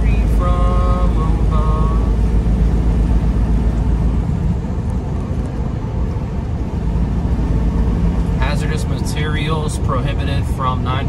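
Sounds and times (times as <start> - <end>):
truck engine and road rumble: 0.0 - 11.0.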